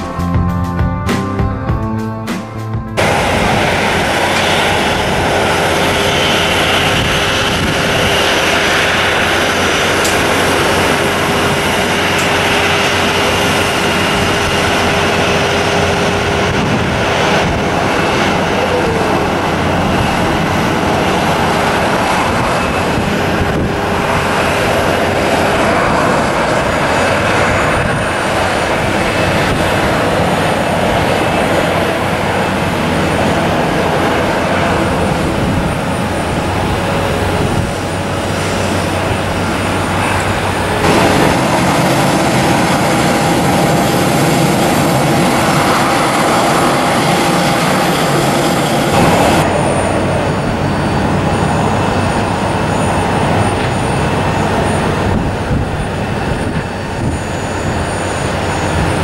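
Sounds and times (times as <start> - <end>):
high whine: 0.0 - 59.0
jet engines running: 0.0 - 59.0.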